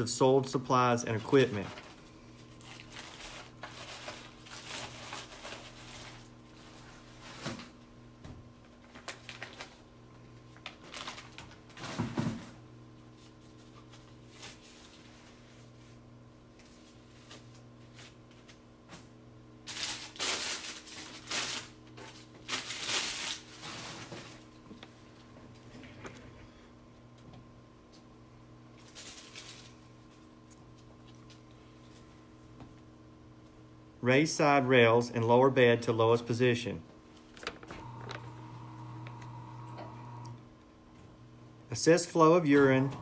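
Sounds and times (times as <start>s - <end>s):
low electrical hum: 0.0s - 43.0s
plastic and paper crinkling: 1.0s - 7.8s, 8.7s - 9.9s, 10.6s - 12.1s, 19.7s - 24.6s, 28.8s - 30.3s.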